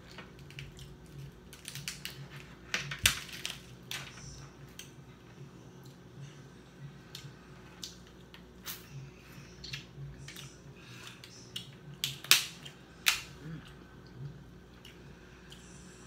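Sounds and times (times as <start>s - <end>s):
crab shells cracking: 0.1s - 3.7s, 11.2s - 13.4s.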